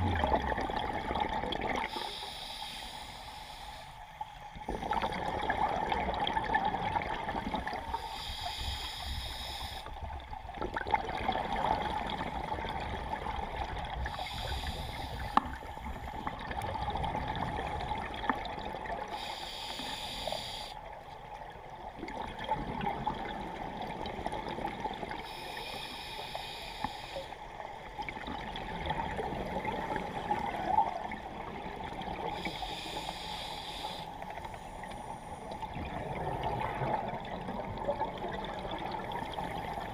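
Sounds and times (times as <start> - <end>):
bubbling exhalations underwater: 0.0 - 1.9
diver inhaling through regulator: 1.9 - 4.0, 7.9 - 9.9, 14.1 - 16.1, 19.1 - 20.8, 25.2 - 27.4, 32.4 - 35.5.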